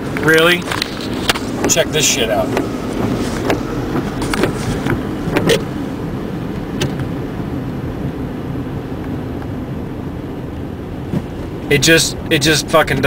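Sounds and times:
car road and engine noise: 0.0s - 13.0s
tyres on a wet road: 0.0s - 13.0s.

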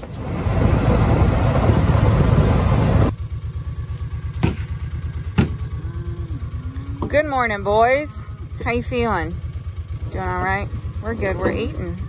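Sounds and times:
engine idling: 0.0s - 12.0s
sharp knocks: 4.4s - 5.7s.

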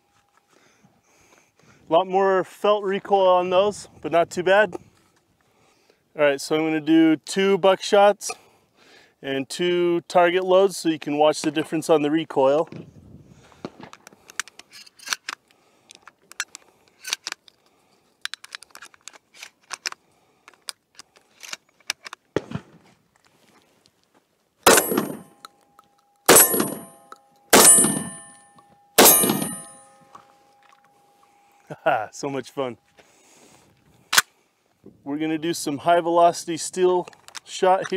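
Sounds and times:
faint steady ring: 0.0s - 0.9s, 24.7s - 33.7s
shotgun shells loading clicks: 13.9s - 22.3s, 24.7s - 31.3s, 37.0s - 37.9s
shotgun shots: 24.7s - 25.3s, 26.3s - 28.3s, 29.0s - 29.8s.

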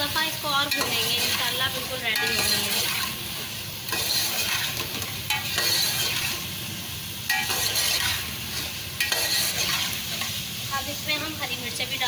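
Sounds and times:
oil sizzling: 0.0s - 12.0s
metal spoon scraping a pot: 0.7s - 3.2s, 3.9s - 6.4s, 7.3s - 10.3s.

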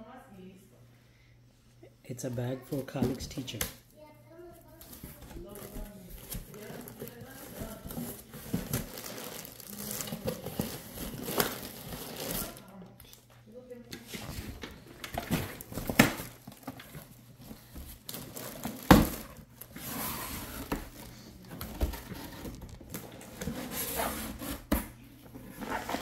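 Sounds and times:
plastic packaging crinkling: 4.8s - 13.2s, 15.2s - 24.0s.

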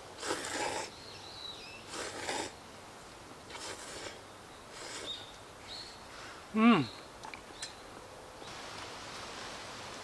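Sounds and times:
person slurping noodles: 0.2s - 0.9s, 1.9s - 2.6s, 3.5s - 5.2s.

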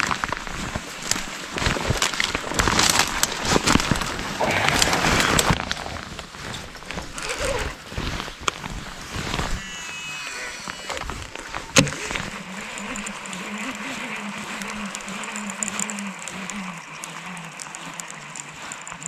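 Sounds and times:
clothing and reeds rustling: 0.0s - 19.0s.

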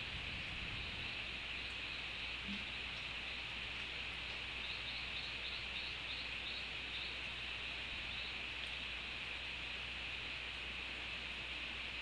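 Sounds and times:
steady hiss: 0.0s - 12.0s
small bird chirping: 0.3s - 8.9s.

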